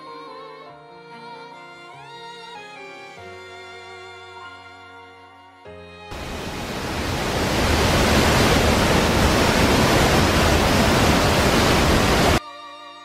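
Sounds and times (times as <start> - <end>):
waterfall rushing: 6.1 - 12.4.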